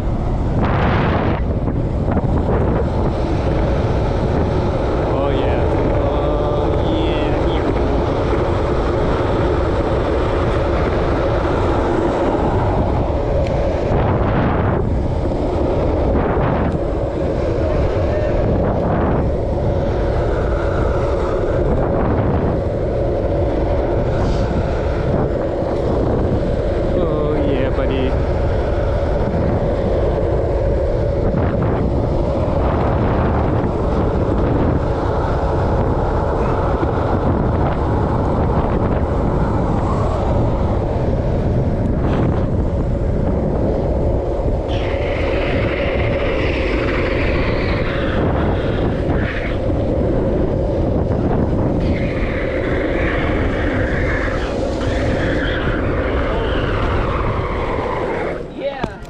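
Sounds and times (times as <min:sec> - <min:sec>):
steady low hum: 0:00.0 - 0:59.0
wheels rolling on asphalt: 0:00.0 - 0:59.0
wind rushing over microphone: 0:00.0 - 0:59.0.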